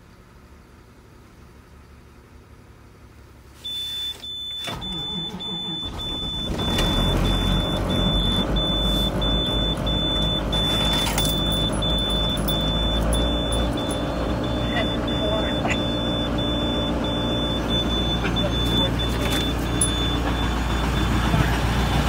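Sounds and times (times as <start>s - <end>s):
diesel engine cranking and idling: 0.0s - 22.0s
dashboard warning buzzer beeping: 3.7s - 21.2s.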